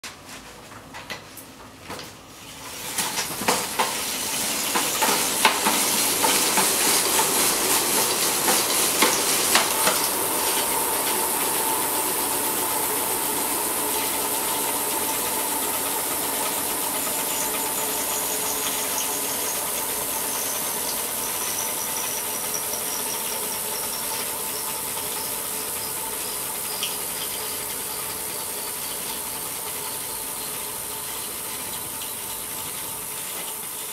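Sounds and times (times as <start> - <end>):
spinning wheel whirring: 3.7 - 33.9
bicycle wheel clicking: 13.3 - 33.9.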